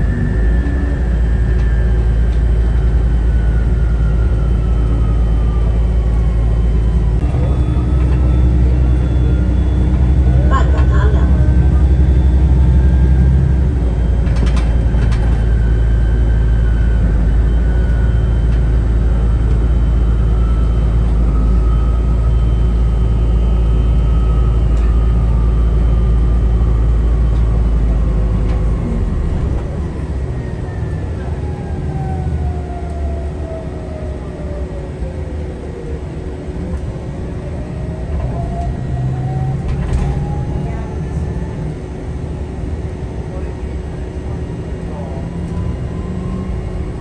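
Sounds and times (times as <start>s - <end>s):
bus engine and road rumble: 0.0s - 47.0s.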